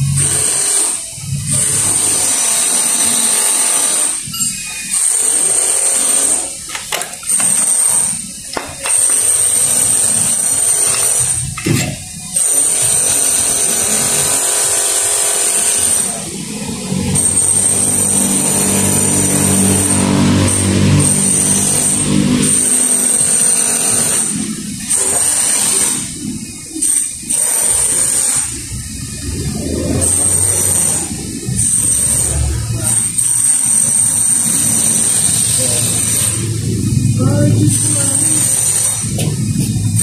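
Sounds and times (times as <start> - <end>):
electric power tool whining: 0.0 - 40.0
low hum: 34.5 - 40.0.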